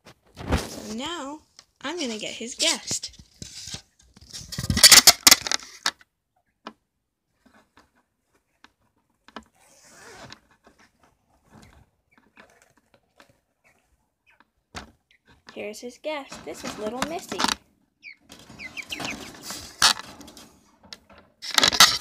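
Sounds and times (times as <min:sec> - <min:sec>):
phone handling rustling and knocking: 0:19.8 - 0:22.0.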